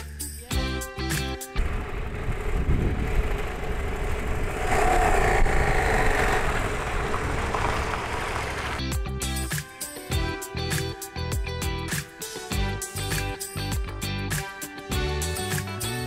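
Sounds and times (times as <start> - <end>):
motorcycle engine running: 1.4 - 8.8
wind rushing on camera: 1.6 - 8.8.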